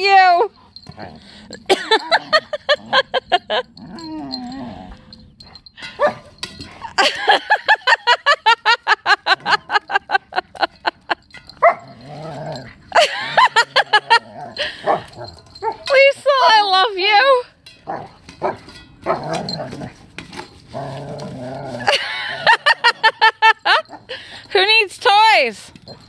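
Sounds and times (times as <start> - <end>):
puppy growling: 11.8 - 12.9, 13.7 - 15.6.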